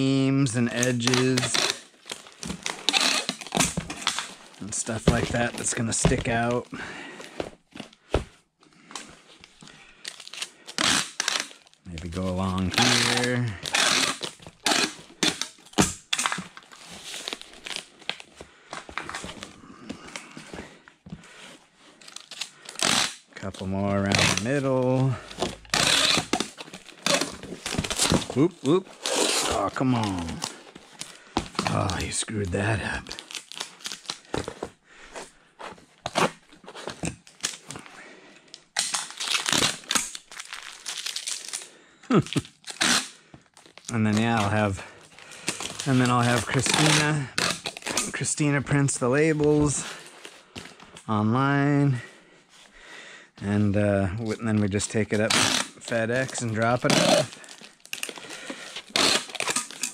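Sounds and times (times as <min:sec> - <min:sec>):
cardboard and tape crinkling: 0:00.0 - 0:51.2, 0:54.2 - 0:59.9
packing tape ripping: 0:00.6 - 0:06.6, 0:10.0 - 0:20.3, 0:21.9 - 0:34.7, 0:38.5 - 0:48.3, 0:55.1 - 0:59.9.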